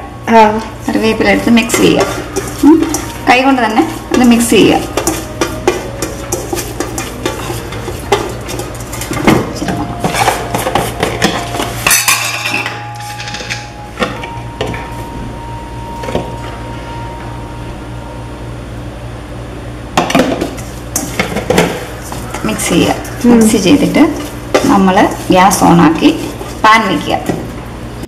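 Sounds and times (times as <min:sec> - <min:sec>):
steady low hum: 0:00.0 - 0:28.0
fingers scraping metal pan: 0:03.8 - 0:09.2.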